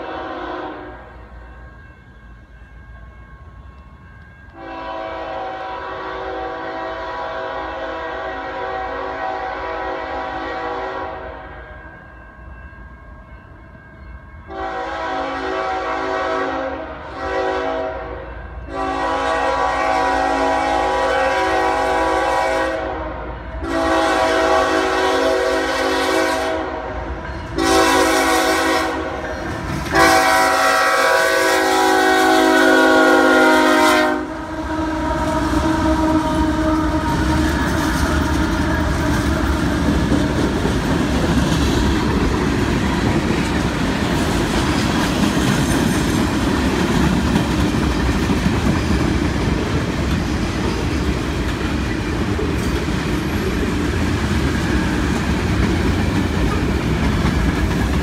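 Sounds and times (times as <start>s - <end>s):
locomotive air horn blasts: 0.0s - 1.1s, 4.6s - 11.8s, 14.5s - 39.6s
train wheels rumbling on rails: 0.0s - 58.0s.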